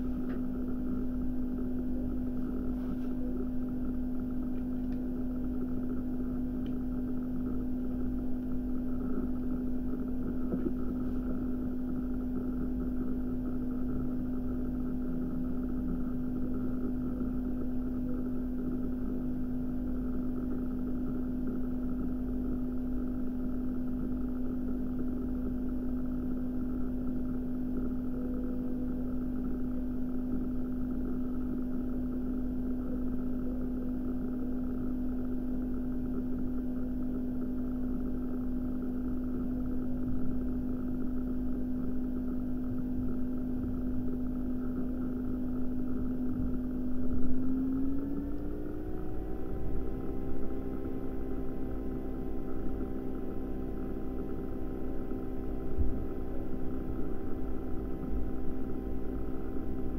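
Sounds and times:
low hum: 0.0 - 59.9
constant rumbling noise: 8.0 - 18.3.

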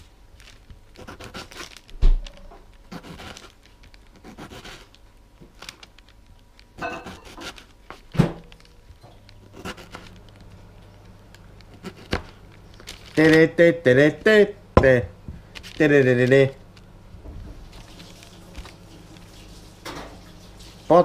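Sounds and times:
knife slicing tomato on board: 4.2 - 4.9, 6.8 - 8.1, 9.5 - 10.1, 11.7 - 12.3
man talking: 13.2 - 15.1, 15.8 - 16.6.

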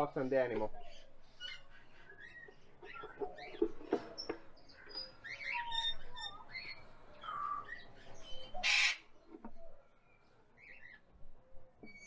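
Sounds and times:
cockatiels chirping and whistling: 0.9 - 9.0
loud harsh bird call: 4.8 - 9.2.

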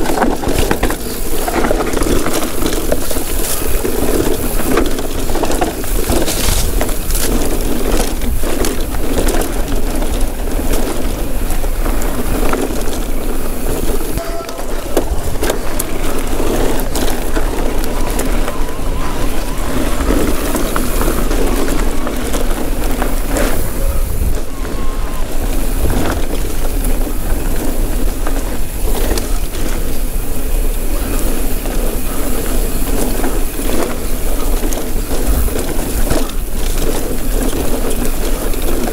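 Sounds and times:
bike rattling clicks and knocks: 0.0 - 38.9
tyres crunching over dirt and stones: 0.0 - 38.9
low rumble: 8.3 - 28.2.

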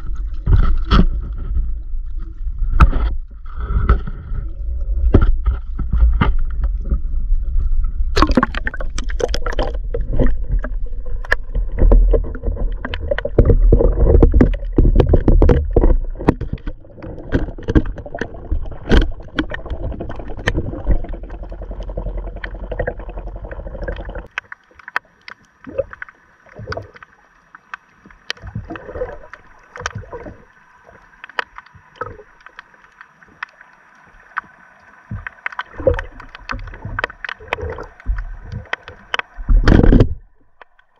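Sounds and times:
muffled underwater rushing: 0.0 - 40.9
water splashing: 0.0 - 40.9
faint clicks: 24.2 - 28.5, 29.3 - 39.4.

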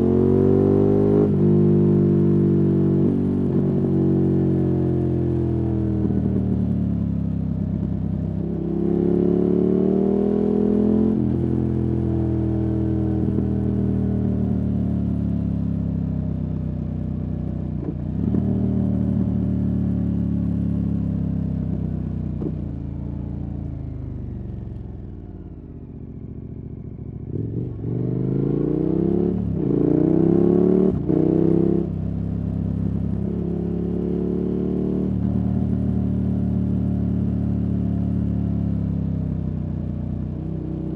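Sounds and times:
motorcycle engine revving: 0.0 - 7.1, 26.7 - 39.5.

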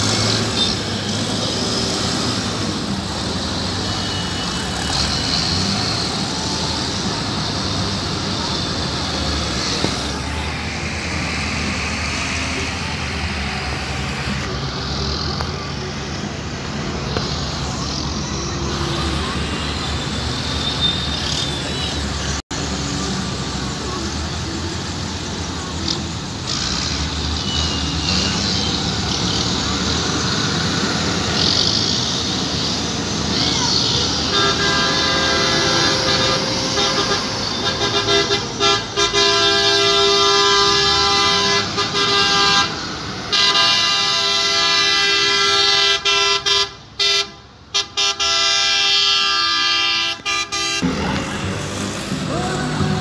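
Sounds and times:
tractor diesel engines running: 0.0 - 53.0
vehicle horn honking: 34.2 - 50.9
crowd voices: 50.8 - 53.0.

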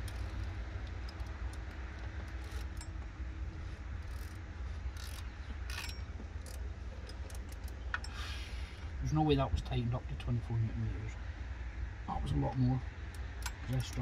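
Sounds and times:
ratchet wrench clicking: 0.0 - 3.0, 3.7 - 8.3, 13.1 - 14.0
low steady rumble: 0.0 - 14.0.

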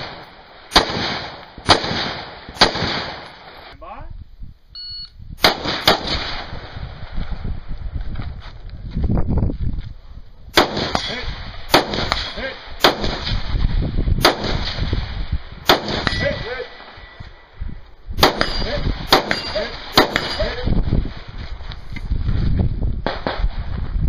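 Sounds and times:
rifle shots: 0.0 - 3.7, 5.4 - 6.8, 10.5 - 17.1, 18.2 - 20.9, 23.0 - 23.7
steel targets ringing: 16.0 - 17.2, 18.3 - 20.6.

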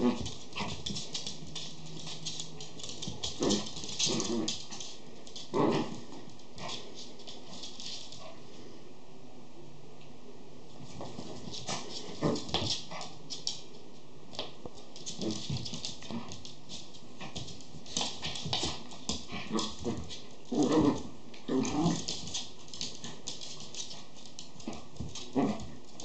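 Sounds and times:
claws scrabbling on wooden floor: 0.0 - 8.4, 14.3 - 26.0.

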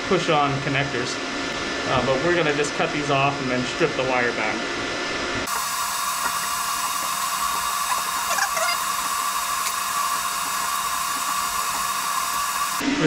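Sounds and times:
high-pitched machine whine: 5.2 - 13.0
hiss: 5.5 - 13.0.

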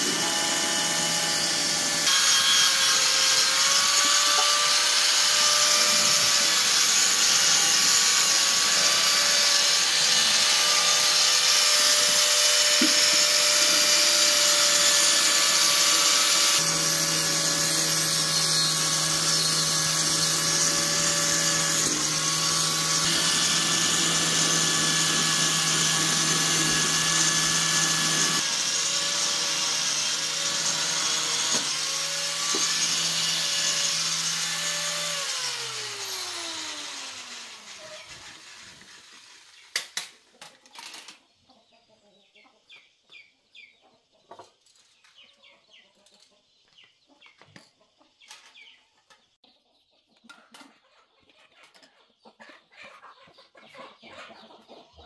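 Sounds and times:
angle grinder on metal: 0.0 - 39.8.

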